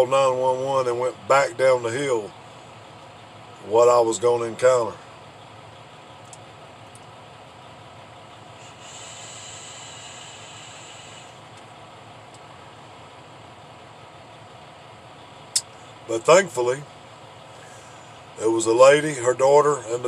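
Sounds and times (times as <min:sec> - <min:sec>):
vehicle engine idling: 0:00.0 - 0:20.0
vape hissing: 0:08.6 - 0:11.4.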